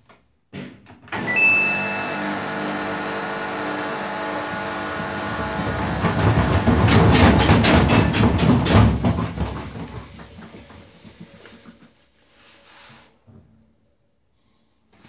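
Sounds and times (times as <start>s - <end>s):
washing machine drum rumbling: 3.6s - 11.8s
washing machine cabinet knocking: 4.9s - 11.4s.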